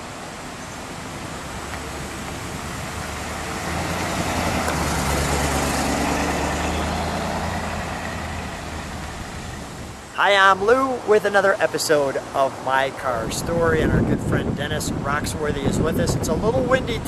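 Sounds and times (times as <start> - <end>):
car engine driving past: 1.4 - 10.1.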